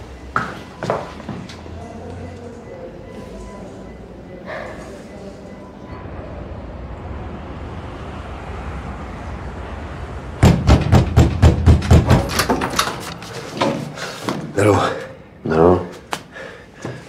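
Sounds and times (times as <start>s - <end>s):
loud knocks on a door: 10.4s - 12.6s.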